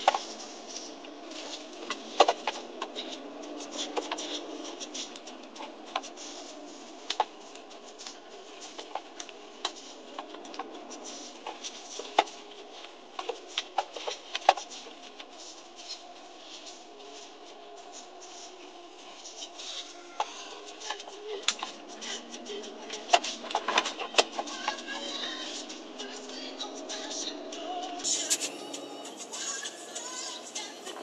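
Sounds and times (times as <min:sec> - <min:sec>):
vehicle cabin hiss: 0:24.4 - 0:31.0.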